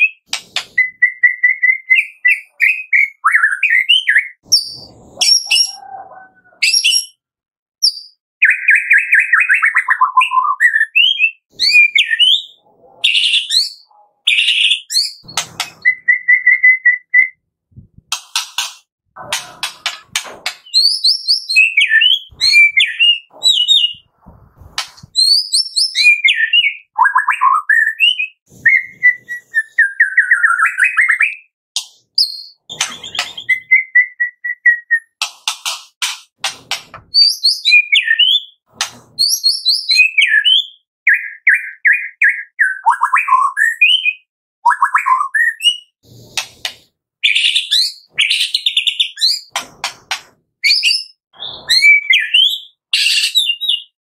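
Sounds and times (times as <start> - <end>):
bird singing whistled phrases: 0.0 - 7.2, 7.8 - 17.4, 20.6 - 24.0, 25.2 - 31.5, 32.2 - 35.2, 37.2 - 38.6, 39.2 - 45.9, 50.6 - 54.0
sharp clicks of bird: 0.3 - 0.8.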